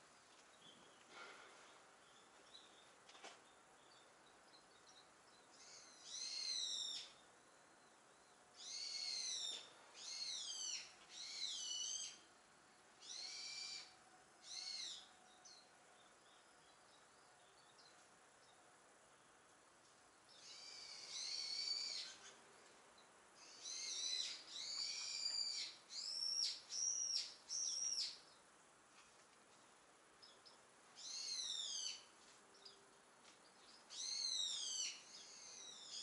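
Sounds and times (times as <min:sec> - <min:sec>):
faint steady hiss: 0:00.0 - 0:36.0
bird whistled calls: 0:05.7 - 0:07.1, 0:08.6 - 0:12.2, 0:13.0 - 0:13.9, 0:20.5 - 0:22.2.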